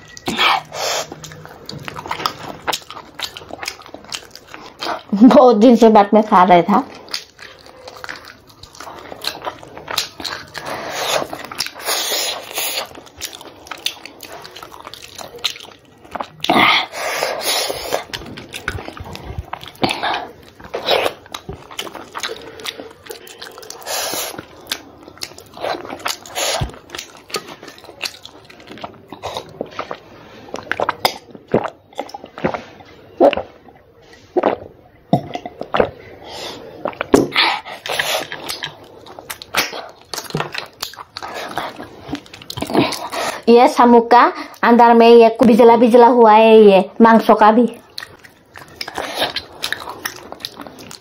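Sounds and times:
person eating and sucking snails: 0:00.0 - 0:05.1, 0:06.8 - 0:43.5, 0:47.8 - 0:51.0
wet smacks and clicks: 0:07.1 - 0:16.7, 0:17.8 - 0:30.0, 0:36.9 - 0:43.1.

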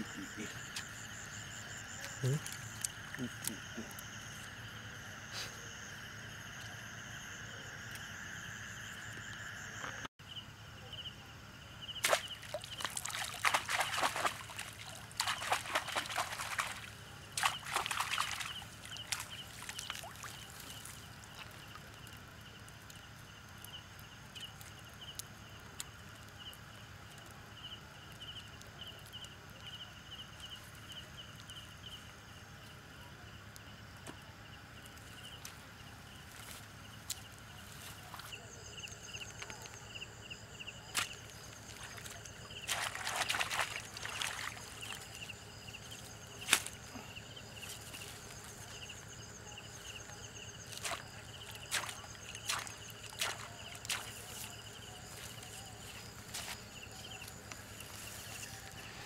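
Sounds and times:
night insects chirring: 0:00.0 - 0:59.0
sloshing: 0:12.0 - 0:21.8, 0:40.9 - 0:48.8, 0:50.7 - 0:55.2.

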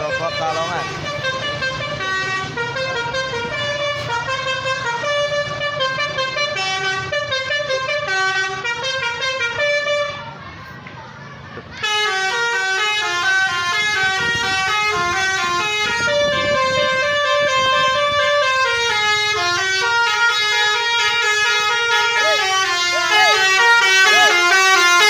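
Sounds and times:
musical air horn melody: 0:11.8 - 0:25.0.

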